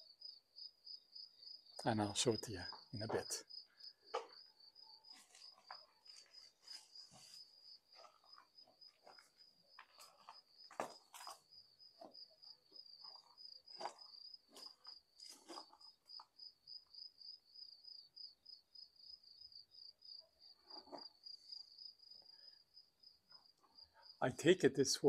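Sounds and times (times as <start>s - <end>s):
cricket trilling: 0.0s - 24.3s
soft knocks and scuffs: 5.1s - 11.4s.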